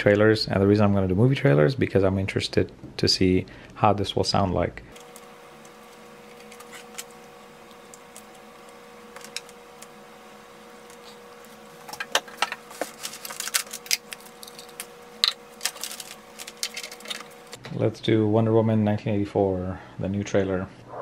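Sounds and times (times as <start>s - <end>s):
faint steady hum: 0.0s - 21.0s
cable plugs clicking and rattling: 5.0s - 9.9s, 11.8s - 17.5s.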